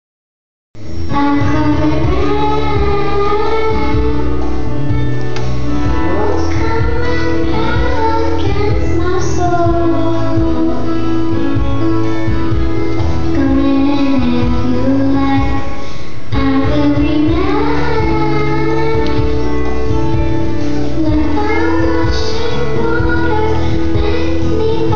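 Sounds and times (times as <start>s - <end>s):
instrumental accompaniment: 0.8s - 24.9s
children singing: 5.9s - 10.9s, 16.4s - 19.9s, 21.0s - 24.9s.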